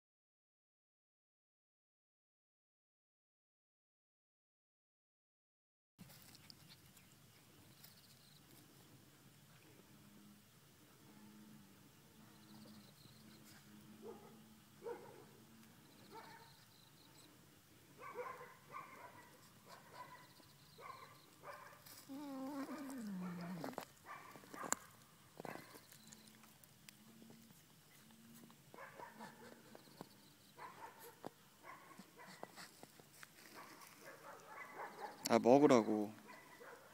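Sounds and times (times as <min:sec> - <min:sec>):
cat chewing and crunching fish: 0:06.0 - 0:08.7, 0:21.4 - 0:30.2
low cat vocalization: 0:22.0 - 0:23.9.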